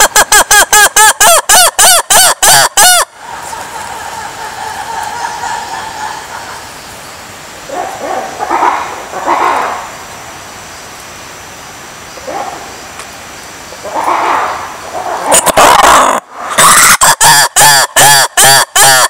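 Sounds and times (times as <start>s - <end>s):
lemur calls: 13.7s - 19.0s.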